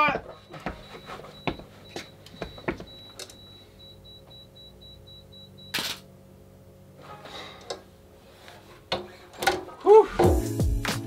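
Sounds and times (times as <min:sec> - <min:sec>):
camera shutter clack: 0:05.7 - 0:06.0.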